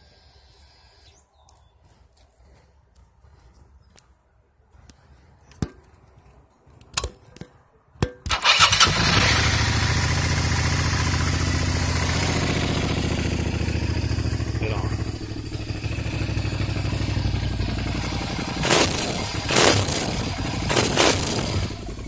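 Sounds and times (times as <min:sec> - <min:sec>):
motorcycle engine idling: 0:08.4 - 0:20.8.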